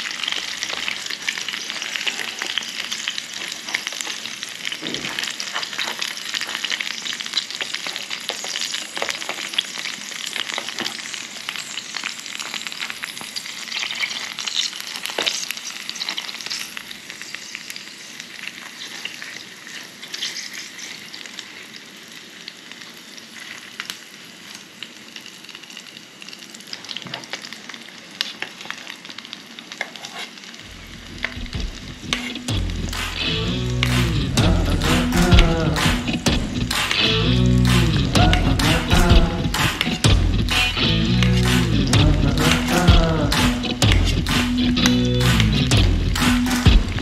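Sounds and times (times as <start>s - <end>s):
egg sizzling in hot oil: 0.0s - 30.7s.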